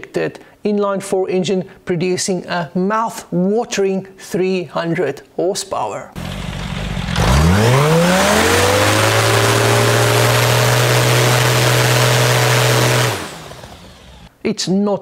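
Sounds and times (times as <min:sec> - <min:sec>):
aero engine revving: 0:06.2 - 0:14.3.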